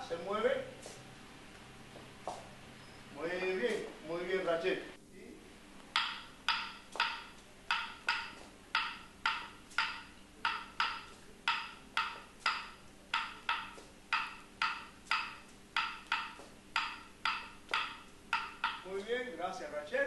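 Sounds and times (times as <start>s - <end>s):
wooden claves striking: 5.9s - 19.1s.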